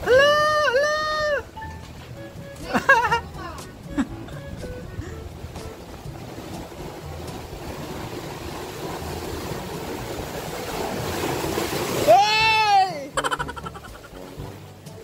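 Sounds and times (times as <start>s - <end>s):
sea surf washing between boulders: 0.0s - 15.0s.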